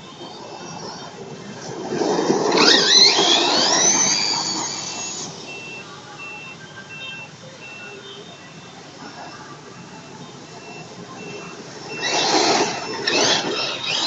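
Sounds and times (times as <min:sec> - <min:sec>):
model truck engine revving: 0:00.0 - 0:05.5, 0:11.4 - 0:14.0.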